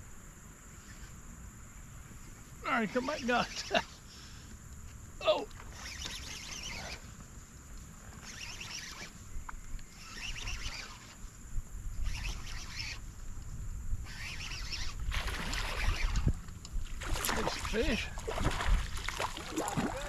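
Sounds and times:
fishing reel cranking: 5.6s - 7.0s, 8.2s - 9.2s, 10.0s - 11.2s, 12.0s - 13.0s, 14.0s - 16.4s.

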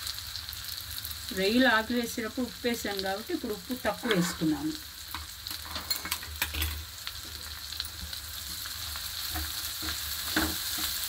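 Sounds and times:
food sizzling in a frying pan: 0.0s - 11.0s
spatula scraping a pan: 3.9s - 4.5s, 8.0s - 11.0s.

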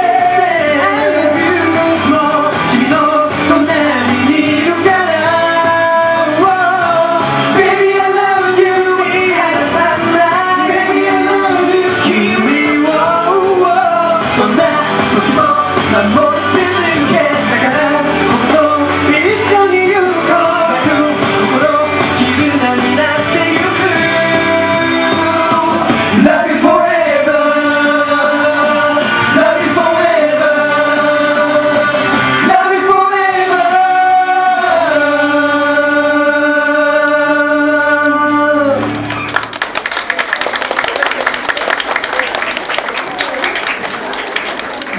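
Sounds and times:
male group singing: 0.0s - 38.8s
amplified pop music: 0.0s - 39.7s.

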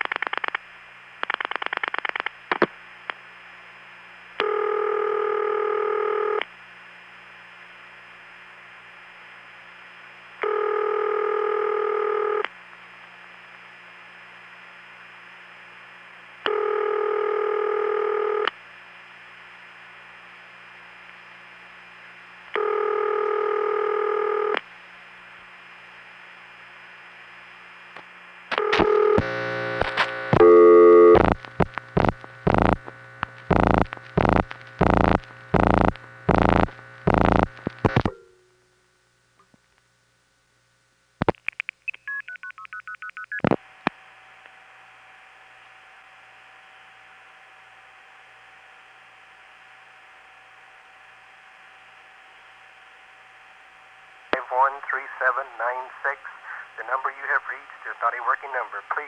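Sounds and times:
rotary dialing clicks and buzz: 0.0s - 0.6s, 1.2s - 2.6s
faint telephone line hum: 0.0s - 59.0s
telephone ringback tone: 4.4s - 6.4s, 10.4s - 12.4s, 16.5s - 18.5s, 22.6s - 24.6s, 28.6s - 29.2s, 30.4s - 31.2s.

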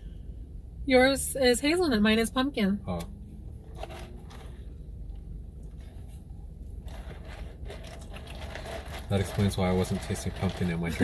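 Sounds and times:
car cabin hum: 0.0s - 11.0s
straw scraping in cup lid: 6.8s - 9.4s.

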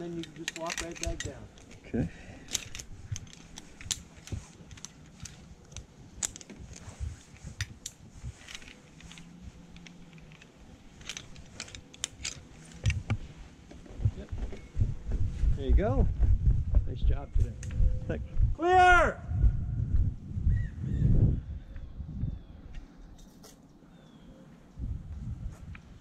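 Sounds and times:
metal carabiners clinking: 0.0s - 13.1s
low thumps: 13.9s - 18.6s.

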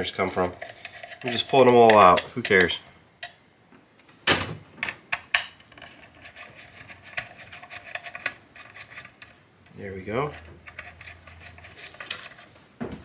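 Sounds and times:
screwdriver ticking and scraping: 0.2s - 3.4s, 5.7s - 12.5s
loose screws clinking: 0.3s - 3.4s.

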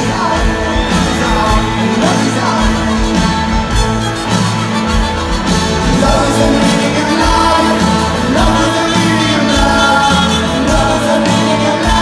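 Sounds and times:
person singing: 0.0s - 4.0s, 5.6s - 12.0s
live rock band playing: 0.0s - 12.0s
saxophone and trombone horns: 0.1s - 12.0s.

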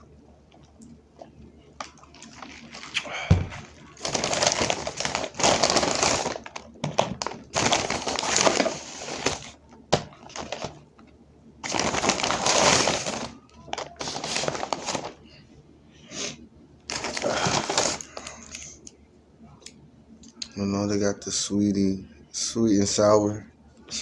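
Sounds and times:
paper bag rustling: 1.8s - 10.8s, 11.6s - 15.2s, 16.9s - 18.3s.

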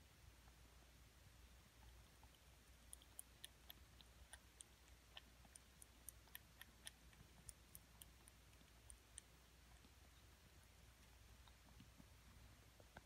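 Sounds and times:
kitten mouth clicks: 1.8s - 10.0s.

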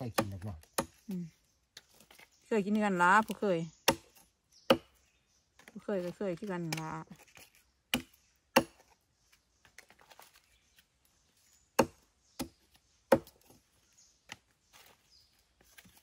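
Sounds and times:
knife chopping onto wooden log: 0.0s - 1.0s, 3.8s - 5.0s, 7.9s - 8.9s, 11.8s - 13.5s.

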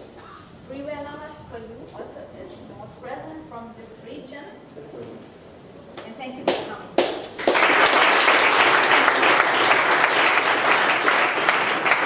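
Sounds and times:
audience applauding: 7.3s - 12.0s.

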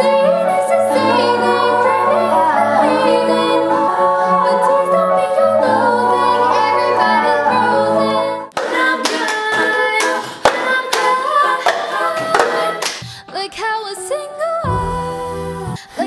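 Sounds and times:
women singing in harmony: 0.0s - 16.0s
plastic cups struck on table: 8.5s - 13.0s
hand claps: 8.5s - 13.1s.

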